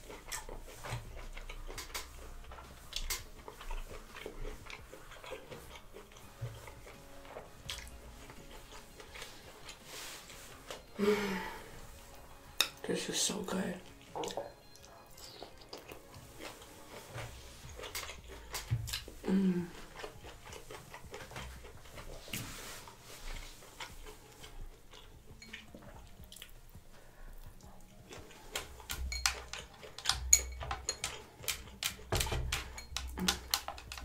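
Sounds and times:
chewing and mouth sounds: 0.0s - 11.0s, 13.8s - 34.0s
shells and glass bowls clicking: 28.9s - 34.0s.

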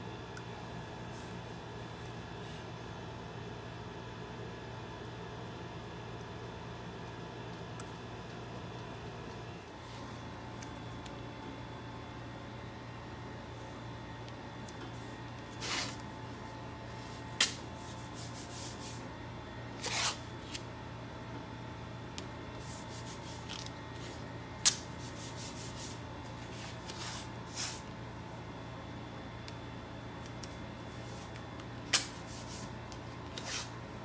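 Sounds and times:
steady low hum: 0.0s - 34.0s
tape rubbed down by hand: 15.6s - 16.0s, 19.8s - 20.6s, 33.3s - 33.8s.

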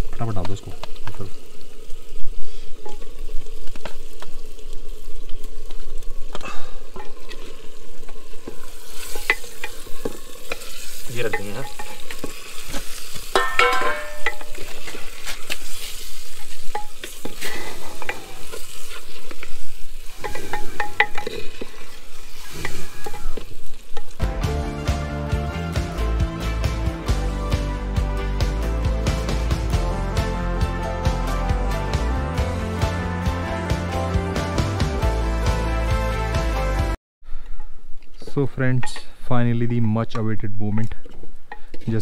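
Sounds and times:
chicken frying and sizzling: 0.0s - 37.0s
background music: 24.2s - 37.0s.

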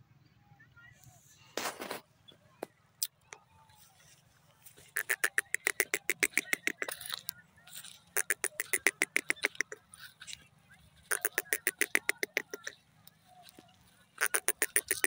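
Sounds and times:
bird calling rapid sharp notes: 4.9s - 15.0s.

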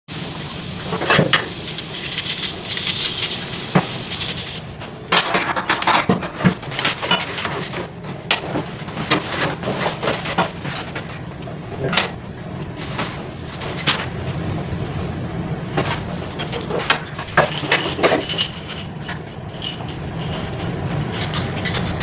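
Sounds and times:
steady low hum: 0.1s - 22.0s
cardboard packaging rustling: 1.4s - 5.0s
metal parts clinking: 1.6s - 5.0s.

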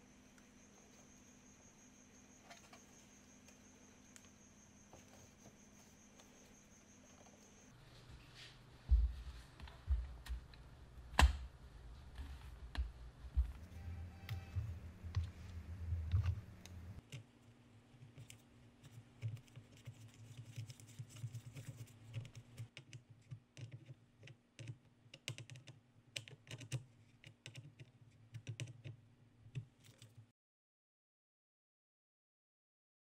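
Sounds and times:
faint steady hum: 0.0s - 30.3s
keyboard parts clicking and tapping: 12.2s - 17.3s, 18.1s - 30.2s.

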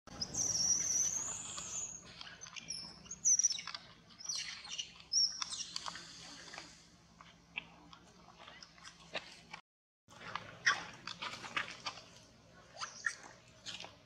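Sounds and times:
high-pitched chirping calls: 0.1s - 6.0s.

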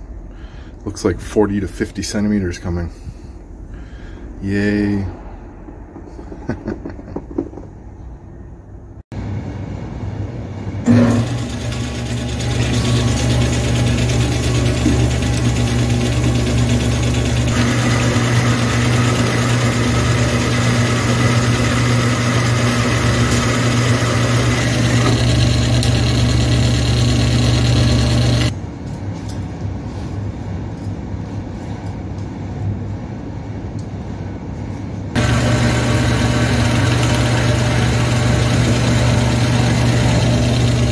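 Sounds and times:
bandsaw cutting steel pipe: 10.9s - 28.5s, 35.2s - 40.9s
coolant flowing: 10.9s - 28.5s, 35.2s - 40.9s.

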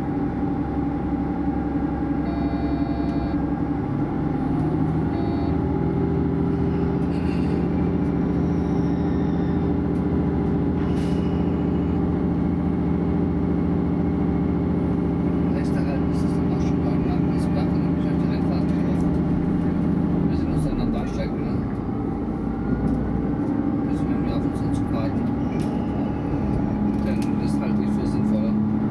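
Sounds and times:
diesel railcar engine humming: 0.0s - 28.9s.

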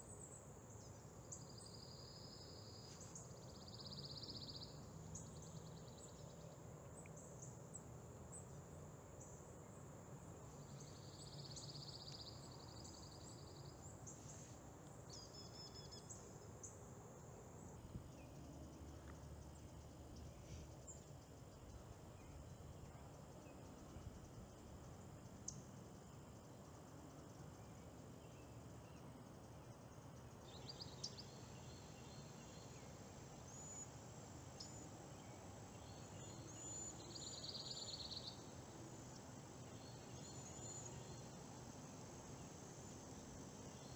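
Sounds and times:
distant bird chirps and trills: 10.5s - 41.6s.

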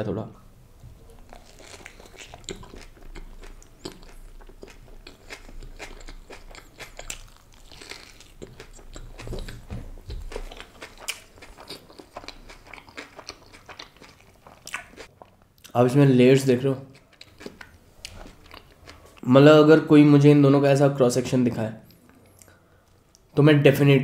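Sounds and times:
person chewing close to microphone: 1.0s - 15.7s, 16.9s - 19.2s.

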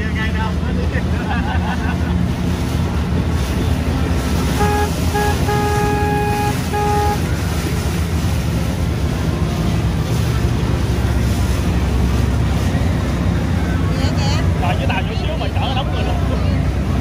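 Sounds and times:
motorboat engine running: 0.0s - 17.0s
water rushing: 0.0s - 17.0s
boat horn toots: 4.2s - 7.9s.

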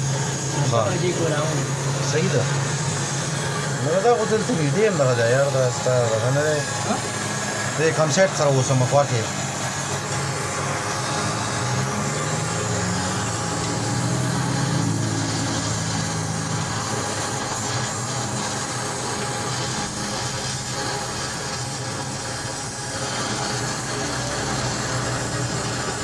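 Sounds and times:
gas torch hissing: 0.0s - 26.0s
low mechanical hum: 0.0s - 26.0s.

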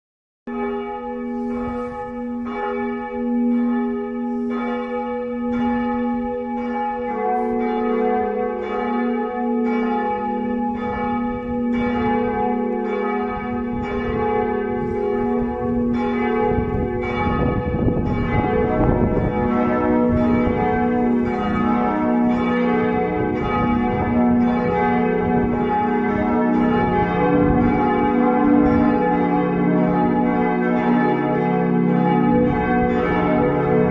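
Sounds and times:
church bells pealing: 0.5s - 33.9s.

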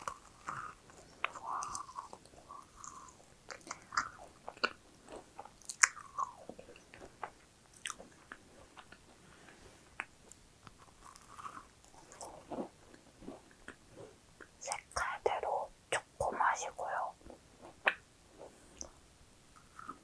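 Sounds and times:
chewing crunches: 0.0s - 9.0s, 10.7s - 13.8s, 19.6s - 20.0s
wet mouth clicks: 1.2s - 4.8s, 5.5s - 6.5s.

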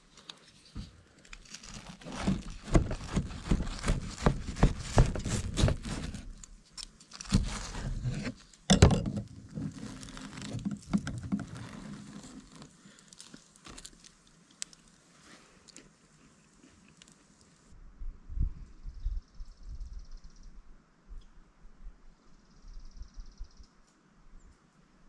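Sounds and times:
light scraping and clicks: 0.0s - 17.5s
knife crunching through toast: 1.2s - 8.6s.

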